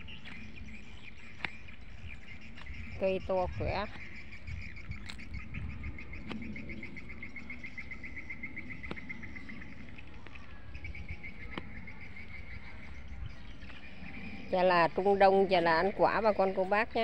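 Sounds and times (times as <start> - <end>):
low rumble: 0.0 - 17.0.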